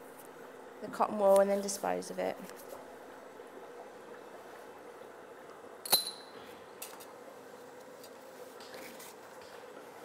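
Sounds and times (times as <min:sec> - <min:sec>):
faint steady hum: 0:00.0 - 0:10.0
sharp metallic click with ring: 0:05.8 - 0:06.2.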